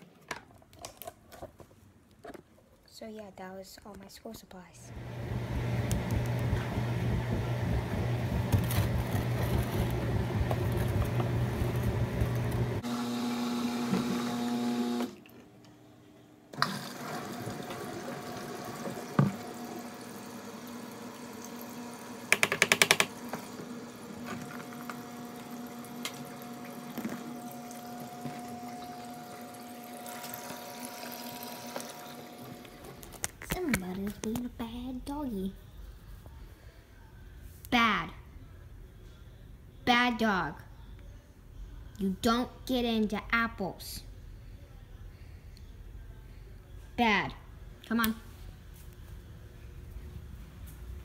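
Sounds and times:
washing machine running: 0:04.9 - 0:15.4, 0:16.5 - 0:33.0.

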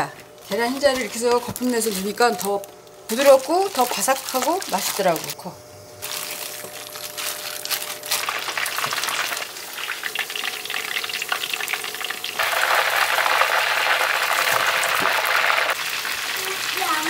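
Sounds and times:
chicken deep-frying in oil: 0:08.0 - 0:17.0.

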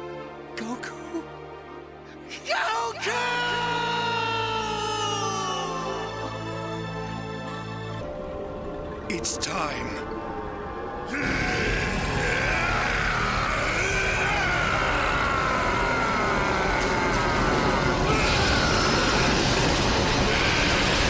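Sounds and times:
man's wavering battle yell: 0:02.3 - 0:06.3, 0:11.1 - 0:19.6
rushing roar of energy blast: 0:11.1 - 0:21.0.

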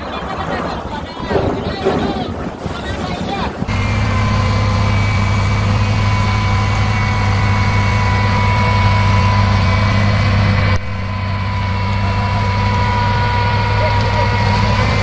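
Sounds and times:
heavy loader engine humming: 0:03.2 - 0:15.0
high whine: 0:03.7 - 0:15.0.

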